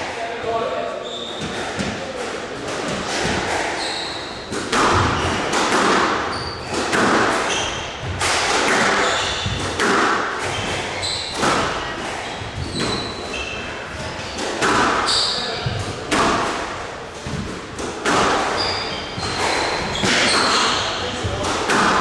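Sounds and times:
shoes squeaking on court: 0:01.0 - 0:02.0, 0:03.2 - 0:05.6, 0:06.3 - 0:08.1, 0:08.7 - 0:09.6, 0:10.4 - 0:14.4, 0:15.0 - 0:15.8, 0:18.5 - 0:21.4
squash ball hits ringing: 0:02.8 - 0:11.8, 0:18.0 - 0:22.0.

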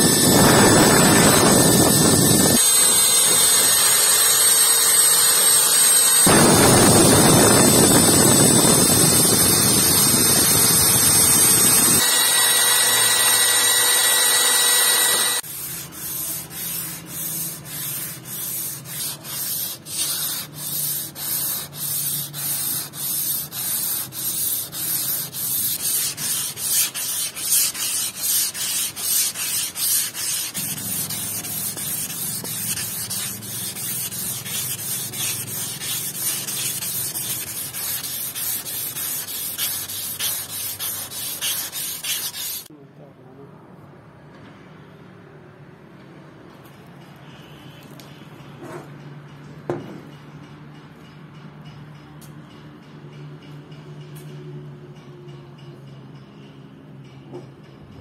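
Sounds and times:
power tool whining: 0:00.0 - 0:15.4
sanding cloth rasping on metal tube: 0:06.3 - 0:42.7.

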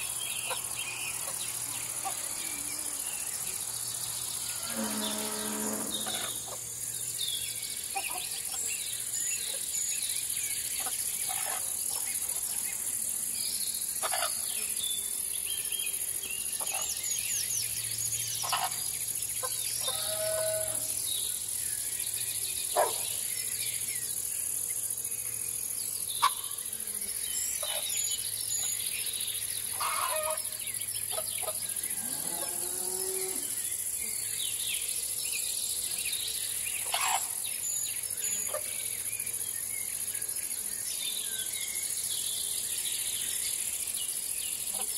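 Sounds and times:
birds chirping: 0:00.0 - 0:08.7
crickets and insects chirping: 0:00.0 - 0:44.9
farm animal calling: 0:04.6 - 0:06.6, 0:29.8 - 0:30.4.

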